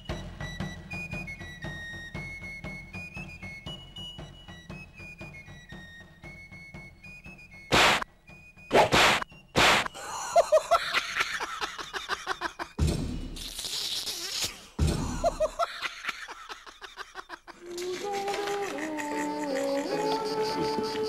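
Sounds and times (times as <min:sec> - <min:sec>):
music with held notes: 0:00.0 - 0:08.7, 0:17.6 - 0:21.0
short sharp swishes: 0:07.7 - 0:08.0, 0:08.7 - 0:09.9.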